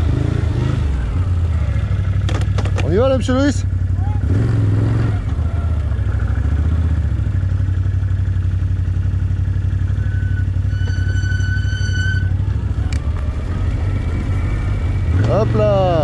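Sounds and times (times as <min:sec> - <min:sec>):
quad engine running: 0:00.0 - 0:10.8
high whistle-like tone: 0:09.9 - 0:12.4.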